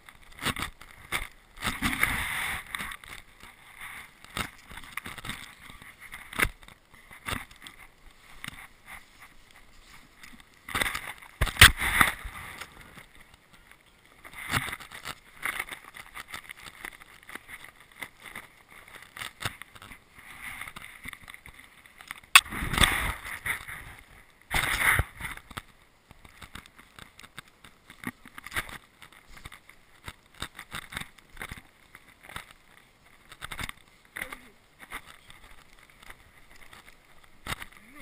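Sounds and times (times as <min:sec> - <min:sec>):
camera handling noise: 0:10.2 - 0:12.8.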